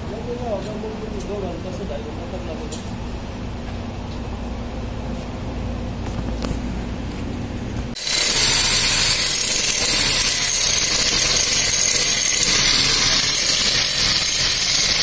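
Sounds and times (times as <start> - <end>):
angle grinder grinding steel: 8.0 - 15.0.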